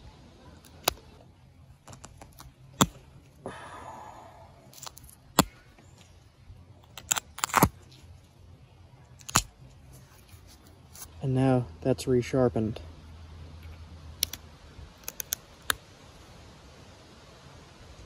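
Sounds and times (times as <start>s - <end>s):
sharp clicks of stone flaking: 1.8s - 3.3s, 4.7s - 6.1s, 6.8s - 8.0s, 9.2s - 11.1s, 15.0s - 15.8s.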